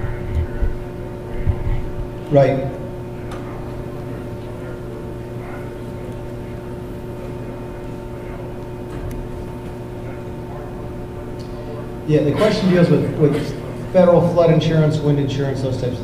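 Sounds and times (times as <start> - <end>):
electrical mains hum: 0.0 - 16.0
distant man's voice: 9.9 - 16.0.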